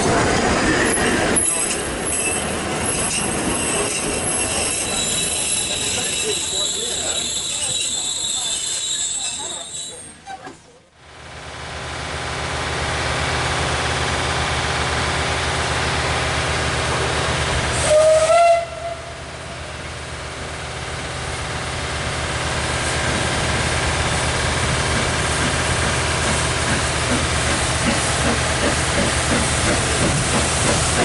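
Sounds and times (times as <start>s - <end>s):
steam locomotive exhaust beats: 11.5s - 31.0s
locomotive whistle blast: 17.8s - 19.2s.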